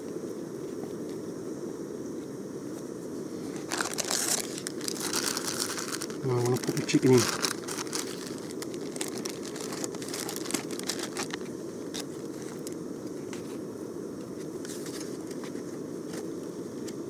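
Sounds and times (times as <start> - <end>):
gas camping stove burning: 0.0 - 17.0
plastic bag crinkling: 3.6 - 12.8.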